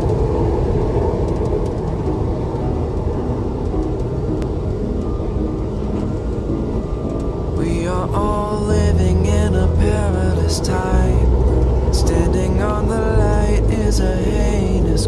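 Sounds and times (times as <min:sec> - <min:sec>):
music: 0:00.0 - 0:15.0
vehicle cabin rumble: 0:00.0 - 0:15.0.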